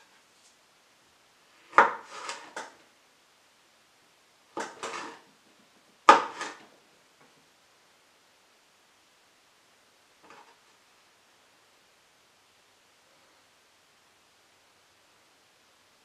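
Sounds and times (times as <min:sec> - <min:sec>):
knife slicing tomatoes: 0:06.1 - 0:06.6.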